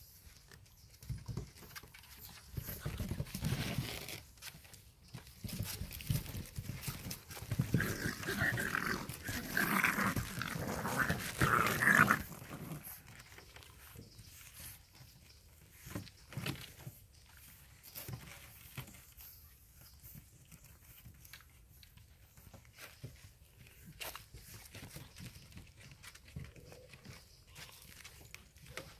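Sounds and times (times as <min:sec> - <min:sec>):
puppies vocalizing: 0:06.2 - 0:16.0.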